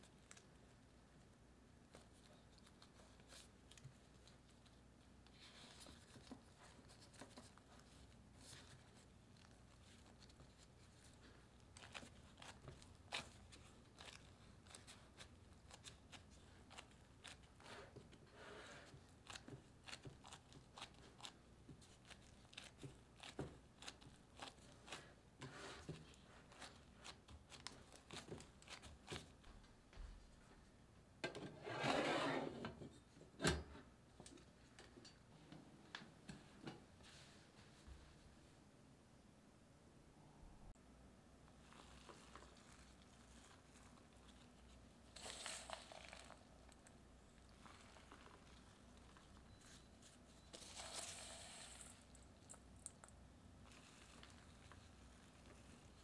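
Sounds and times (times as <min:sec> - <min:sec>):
plastic glove crinkling: 0:01.9 - 0:18.2, 0:18.8 - 0:29.5, 0:41.5 - 0:56.0
dough squashing: 0:05.7 - 0:29.5.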